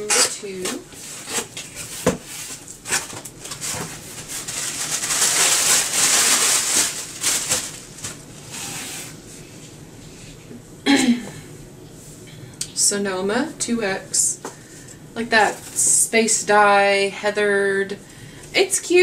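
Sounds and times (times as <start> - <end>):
packing rustling and tearing: 1.1 - 9.1.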